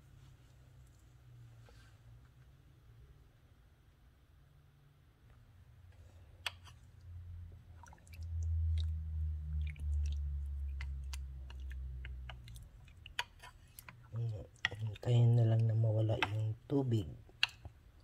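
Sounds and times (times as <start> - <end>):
wet squishing of stirring: 6.0 - 18.0
spatula clicking against crock: 17.3 - 17.8.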